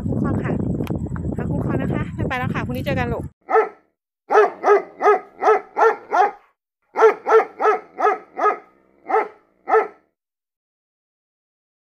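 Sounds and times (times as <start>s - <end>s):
dog barking: 3.4s - 10.1s.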